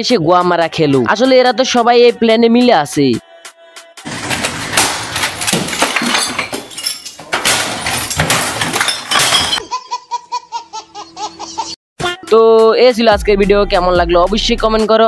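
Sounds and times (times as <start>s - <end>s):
monitor and keyboard smashing: 4.0s - 9.6s
debris cracking and shattering: 4.1s - 9.6s.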